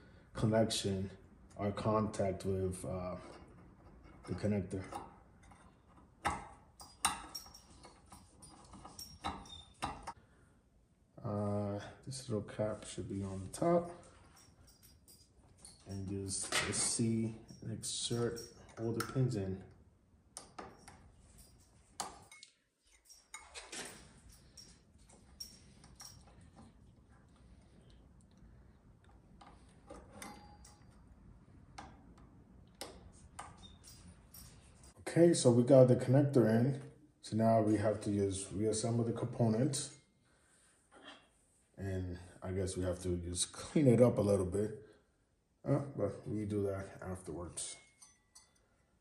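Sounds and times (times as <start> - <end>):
metal tool scraping and clicking: 4.9 - 10.2, 20.4 - 26.8, 29.4 - 31.0, 47.8 - 48.7.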